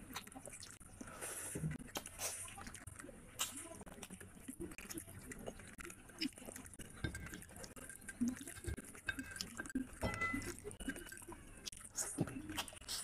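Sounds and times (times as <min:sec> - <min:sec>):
wet chewing: 0:00.0 - 0:13.0.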